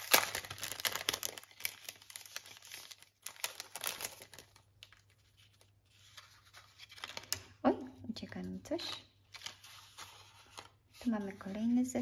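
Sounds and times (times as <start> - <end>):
cellophane packet crinkling: 0.0 - 7.6.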